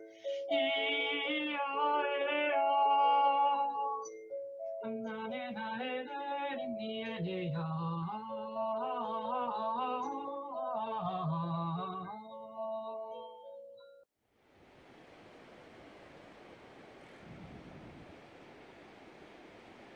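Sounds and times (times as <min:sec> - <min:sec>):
woman singing wordlessly: 0:00.5 - 0:04.1, 0:04.8 - 0:13.1.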